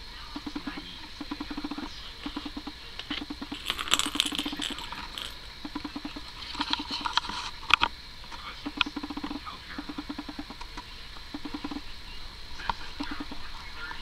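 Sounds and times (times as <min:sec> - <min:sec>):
plastic ball rattling in toy track: 0:03.3 - 0:05.5.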